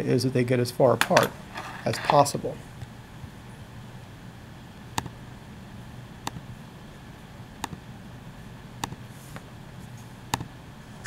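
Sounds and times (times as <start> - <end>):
computer mouse clicks: 7.6 - 7.8, 8.8 - 9.0.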